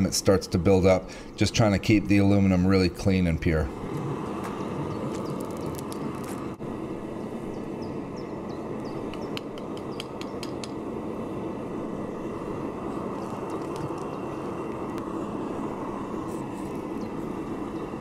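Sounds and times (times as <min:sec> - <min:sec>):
kiln rushing noise: 0:00.0 - 0:18.0
sharp clicks: 0:09.1 - 0:10.8.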